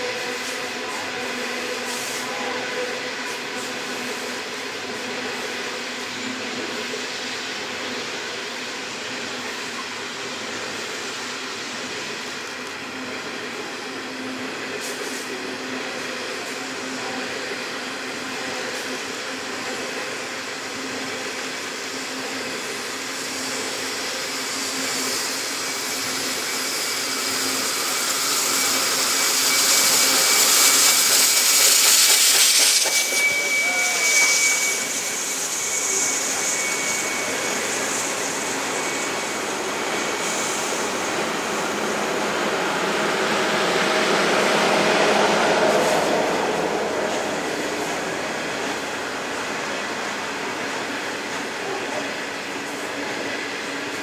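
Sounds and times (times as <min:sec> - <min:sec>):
steam locomotive hiss and rumble: 0:00.0 - 0:54.0
high-pitched carriage squeal: 0:24.0 - 0:41.7.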